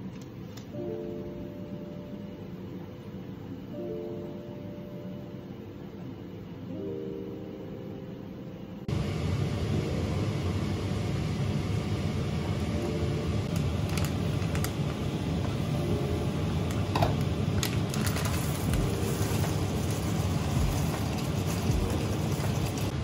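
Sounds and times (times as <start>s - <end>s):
plastic bag crinkling: 13.5s - 15.0s, 17.5s - 22.8s
water boiling in a saucepan: 16.5s - 23.0s.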